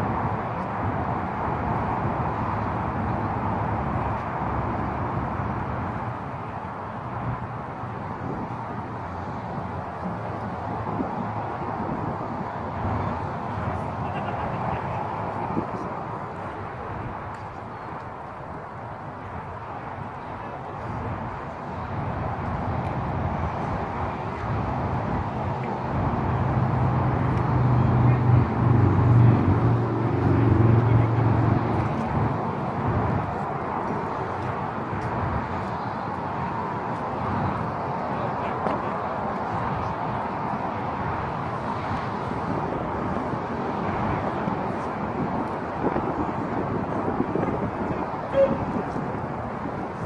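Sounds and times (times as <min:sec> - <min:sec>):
outdoor background noise: 0:00.0 - 0:50.0
vehicle engine approaching: 0:25.8 - 0:33.4.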